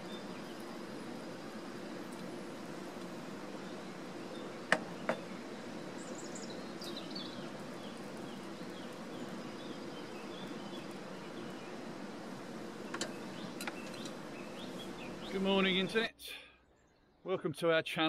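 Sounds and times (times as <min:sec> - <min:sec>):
small birds chirping: 0:00.0 - 0:17.4
faint hum: 0:00.0 - 0:18.0.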